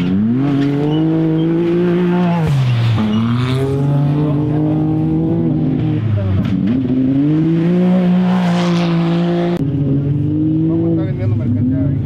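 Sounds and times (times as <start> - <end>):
engine under hard throttle: 0.0 - 12.0.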